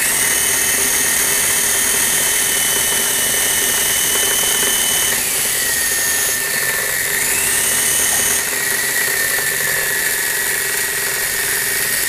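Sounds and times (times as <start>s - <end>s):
toy motors whirring: 0.0s - 12.0s.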